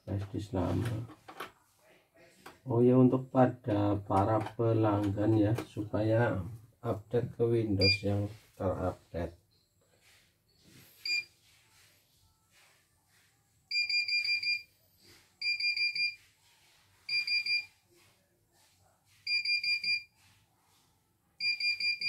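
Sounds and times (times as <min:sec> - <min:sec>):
control panel keys beeping: 0:07.8 - 0:08.0.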